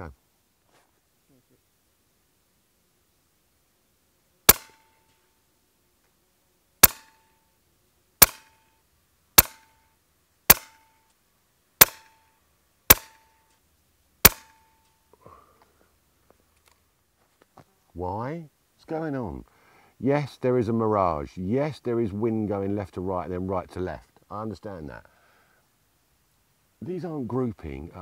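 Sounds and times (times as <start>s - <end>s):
air rifle shots with ringing tone: 4.5s - 5.0s, 6.8s - 7.3s, 8.2s - 8.7s, 9.4s - 9.8s, 10.5s - 11.0s, 11.8s - 12.3s, 12.9s - 13.4s, 14.2s - 14.8s.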